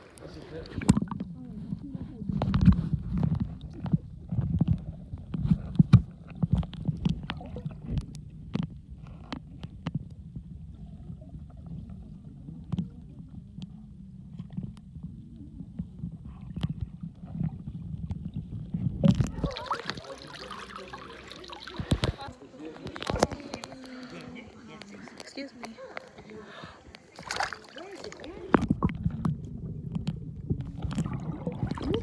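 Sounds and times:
muffled underwater rumble: 0.0s - 24.9s, 25.7s - 32.0s
water splashing: 5.5s - 8.2s, 10.6s - 32.0s.

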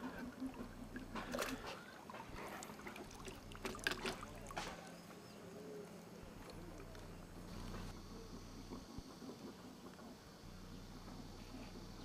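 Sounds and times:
fish splashing in a net: 0.9s - 4.8s
water dripping: 2.6s - 4.6s.

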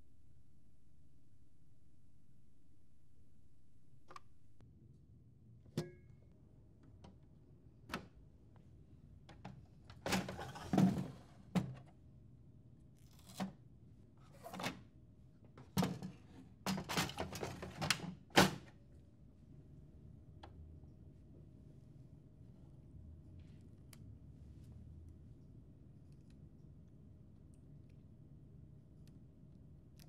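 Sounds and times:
drawer pushed in with thunk: 10.1s - 11.8s.

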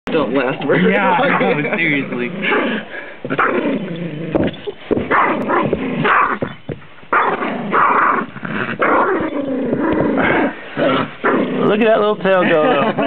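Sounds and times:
small dog growling: 0.2s - 6.5s, 7.2s - 11.8s.

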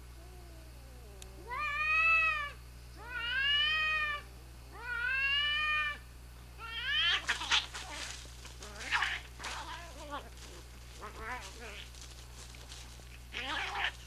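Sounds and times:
cats yowling: 0.2s - 6.0s, 6.6s - 12.0s, 13.0s - 14.0s
low cat yowl: 6.6s - 11.9s, 13.2s - 14.0s.

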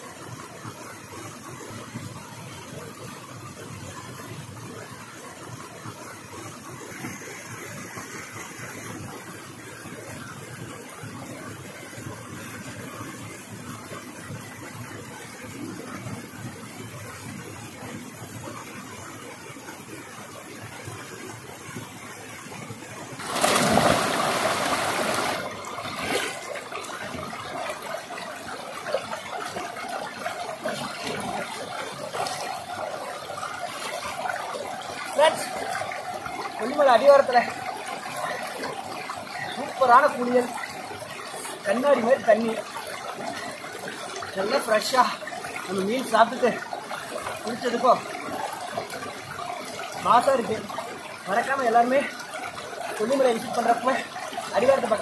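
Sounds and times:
waterfall and stream rushing: 14.5s - 55.0s
loud rush of water: 22.8s - 55.0s
person splashing in water: 23.2s - 26.4s.

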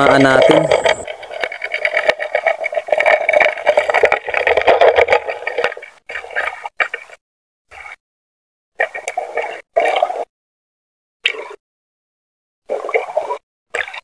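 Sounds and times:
muffled underwater rushing water: 0.0s - 7.2s.

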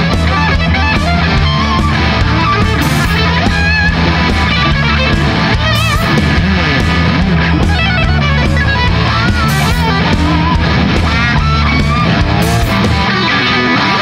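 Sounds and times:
bass: 0.0s - 14.0s
drums with cymbal hits: 0.0s - 14.0s
electric guitar solo: 0.0s - 14.0s.

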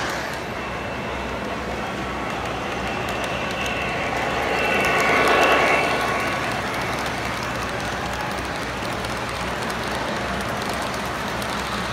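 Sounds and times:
model train rolling rumble: 0.0s - 11.9s
high ringing tone: 0.4s - 7.7s.

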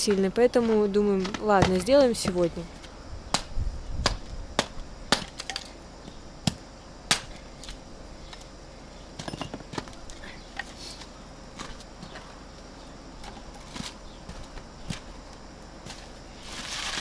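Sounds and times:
hatchet chopping wood: 3.3s - 5.6s, 6.5s - 7.3s.

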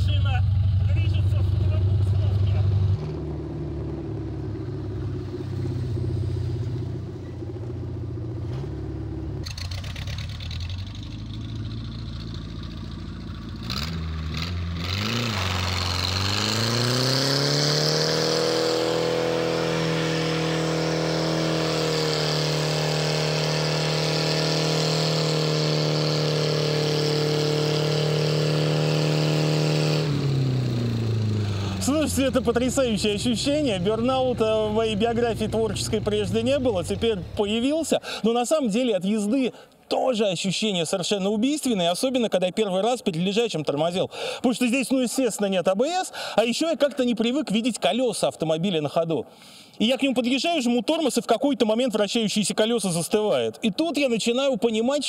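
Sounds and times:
race car engine revving: 0.0s - 37.4s.

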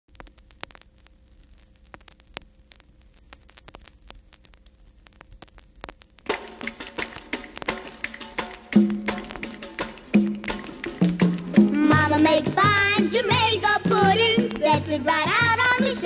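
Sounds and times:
record surface crackle: 0.0s - 16.0s
faint hum: 0.1s - 16.0s
calypso instrumental music: 6.3s - 16.0s
jingling percussion: 6.3s - 16.0s
low bass notes: 10.3s - 15.7s.

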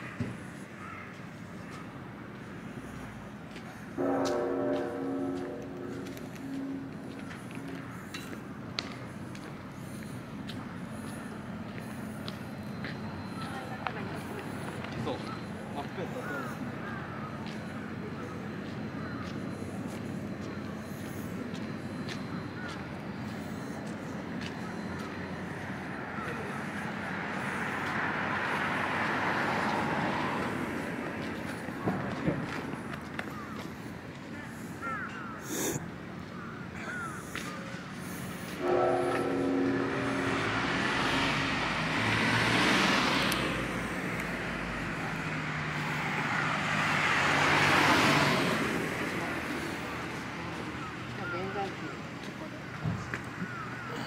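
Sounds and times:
vehicle passing: 2.8s - 8.2s, 37.8s - 52.0s.

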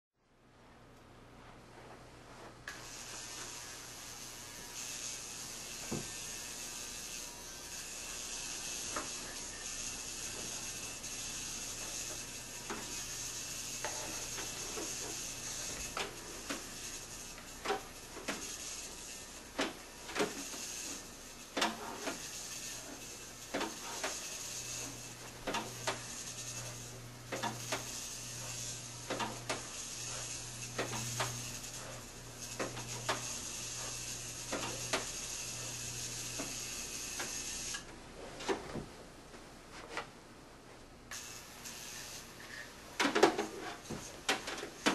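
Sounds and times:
degaussing coil humming: 1.4s - 38.3s.

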